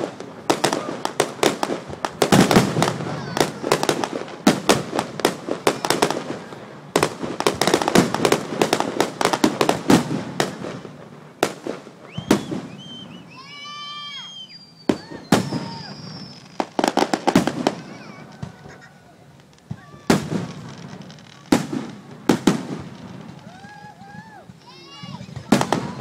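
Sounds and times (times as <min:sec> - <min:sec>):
fireworks bangs and crackles: 0:00.0 - 0:26.0.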